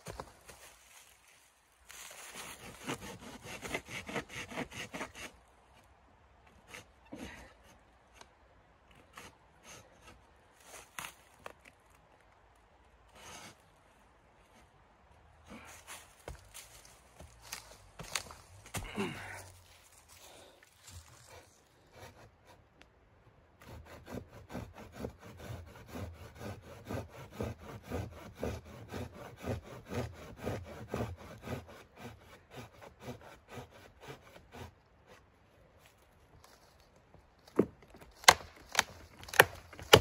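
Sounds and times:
hand saw cutting branch: 1.9s - 5.4s, 13.1s - 13.6s, 23.6s - 35.3s, 37.6s - 40.0s
wood snapping: 37.6s - 40.0s.

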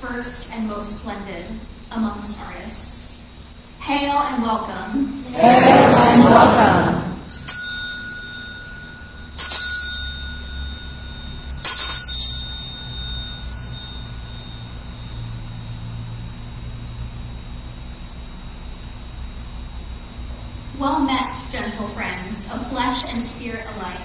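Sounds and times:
hand bell ringing: 7.3s - 15.4s.

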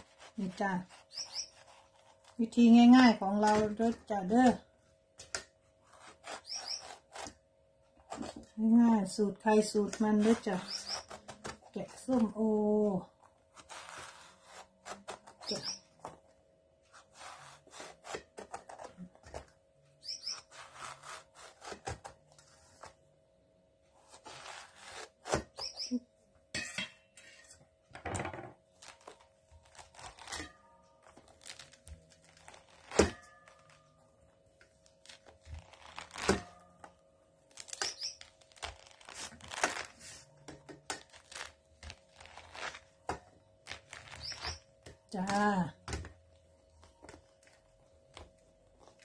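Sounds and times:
knife scraping through fruit rind: 0.0s - 4.0s, 5.8s - 7.4s, 9.5s - 12.3s, 13.1s - 16.2s, 16.9s - 19.4s, 20.0s - 23.0s, 24.0s - 26.0s, 28.8s - 33.9s, 41.0s - 45.5s.

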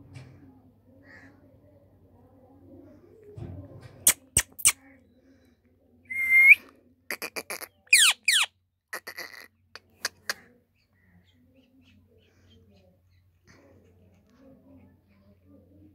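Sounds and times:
parakeet chirps: 7.2s - 8.5s
parakeet squeaks: 7.2s - 9.4s.

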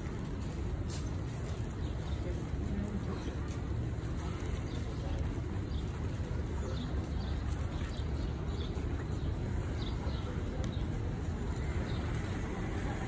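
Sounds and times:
city street traffic rumble: 0.0s - 13.0s.

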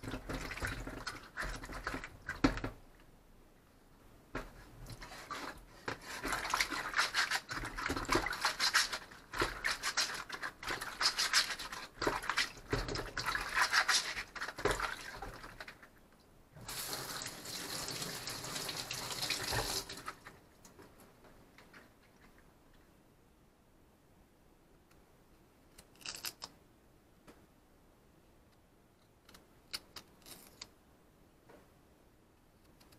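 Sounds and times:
water splashing and sloshing in basin: 0.0s - 2.8s, 4.8s - 15.9s, 16.6s - 20.4s.

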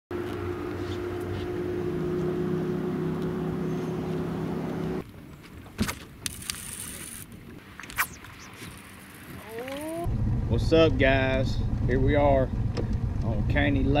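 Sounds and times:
low motor hum: 0.1s - 5.1s, 8.0s - 14.0s
fishing rods swishing: 5.9s - 10.1s
fishing reel whir: 6.2s - 10.1s.

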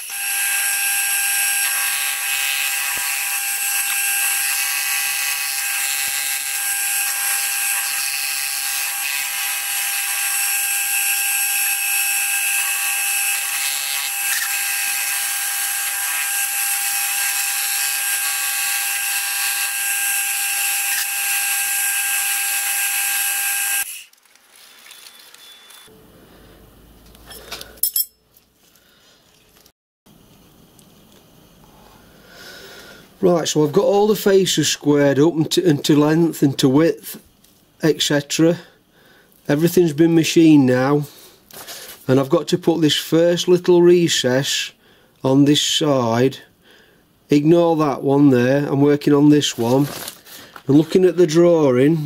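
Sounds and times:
milling machine high-pitched whine: 0.0s - 24.0s.

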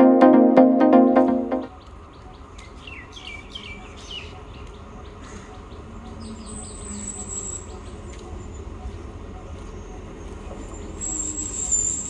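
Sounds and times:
thin high tone: 0.0s - 1.7s.

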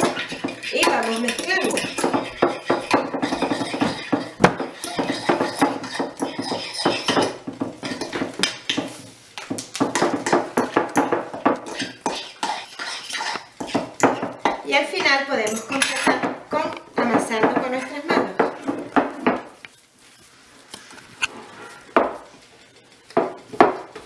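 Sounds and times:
fork scraping glass dish: 0.0s - 8.2s, 11.7s - 13.8s.

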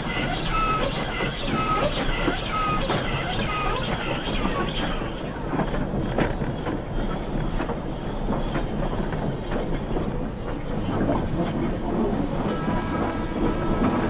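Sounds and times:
model steam engine chuffs: 0.0s - 14.0s
model train running noise: 0.0s - 14.0s.

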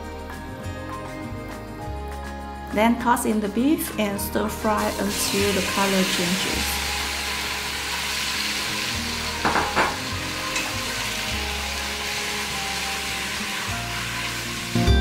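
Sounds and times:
meat sizzling in hot oil: 4.5s - 15.0s.

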